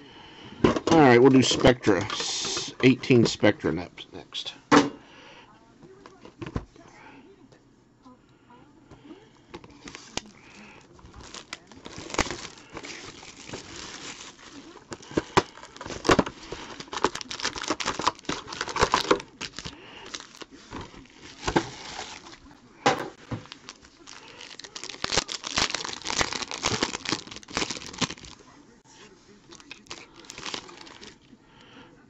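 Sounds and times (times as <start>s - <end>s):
wrapper crinkling and tearing: 9.6s - 22.4s, 23.4s - 28.5s, 29.4s - 31.2s.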